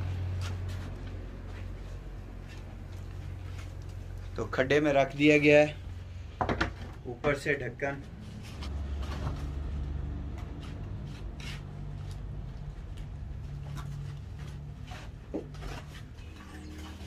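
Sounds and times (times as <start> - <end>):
steady low hum: 0.0 - 16.7.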